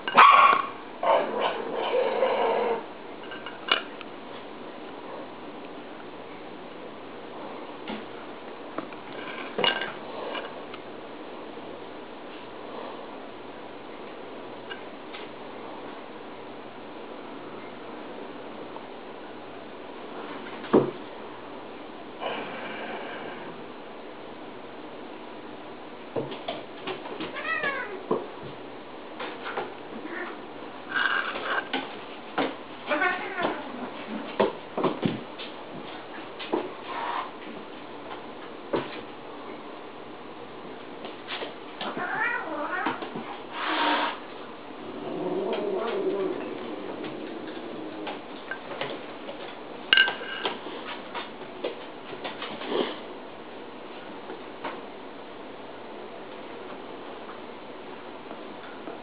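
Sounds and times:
cat meowing: 27.3 - 28.0, 32.9 - 33.7, 41.9 - 43.0
knocks and scuffles on wood floor: 33.4 - 39.1.

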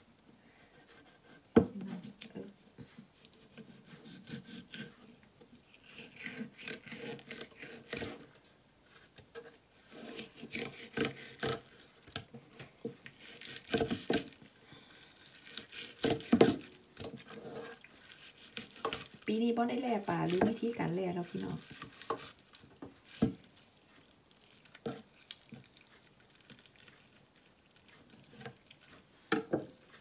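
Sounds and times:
knife scraping fish skin: 0.8 - 12.2, 13.0 - 14.5, 15.2 - 23.6, 27.8 - 28.9.

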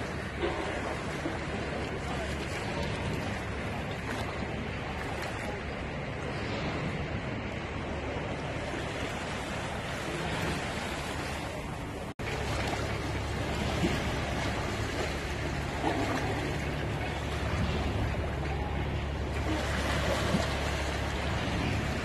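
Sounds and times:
waves washing onto a beach: 0.0 - 22.0.

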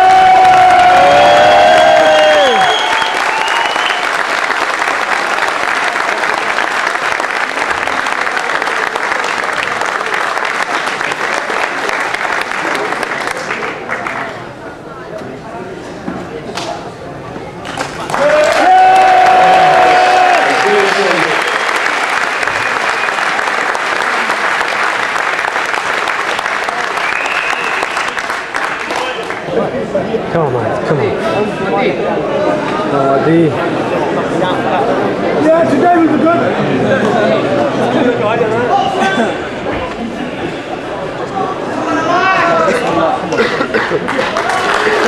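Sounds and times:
crowd applauding: 0.0 - 14.5, 17.6 - 29.6, 43.4 - 45.0.

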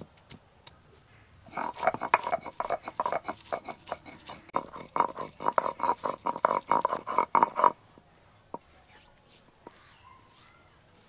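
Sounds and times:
grinding stone scraping and crushing: 1.5 - 7.8.

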